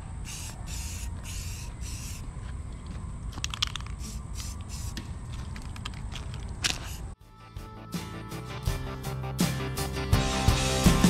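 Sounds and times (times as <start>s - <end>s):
spray paint can hissing: 0.2s - 2.3s, 3.4s - 5.7s, 6.6s - 7.2s.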